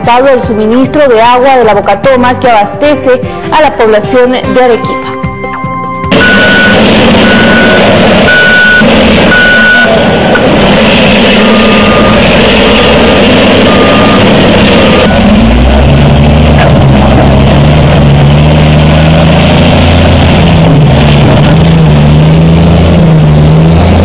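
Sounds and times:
high beeps: 0:06.1 - 0:10.0, 0:11.4 - 0:12.4, 0:13.6 - 0:15.2
heavy diesel engine under load: 0:06.1 - 0:24.0.

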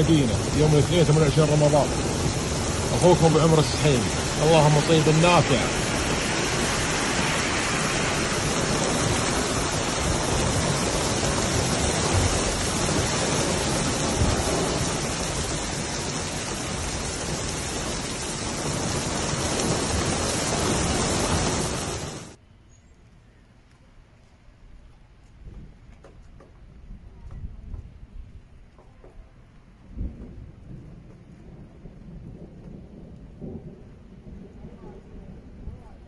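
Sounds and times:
heavy rain falling: 0:00.0 - 0:22.4, 0:29.8 - 0:36.0.

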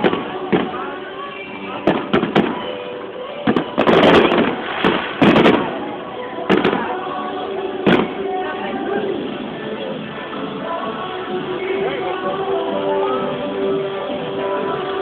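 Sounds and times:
fireworks bursting: 0:00.0 - 0:10.6
murmur of voices: 0:00.0 - 0:15.0.

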